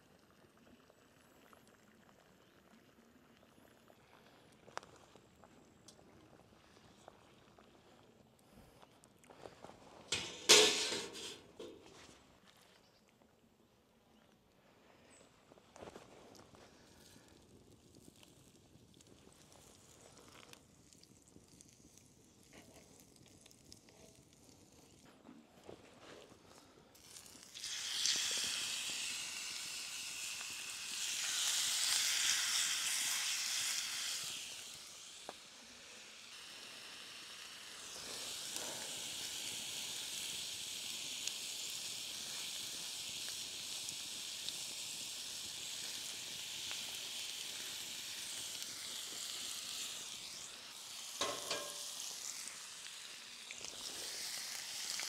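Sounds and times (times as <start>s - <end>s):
steak sizzling in a pan: 27.0s - 55.0s.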